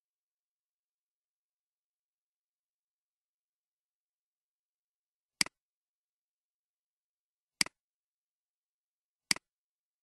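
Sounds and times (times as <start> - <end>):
computer mouse clicks: 5.4 - 5.6, 7.6 - 7.8, 9.3 - 9.6.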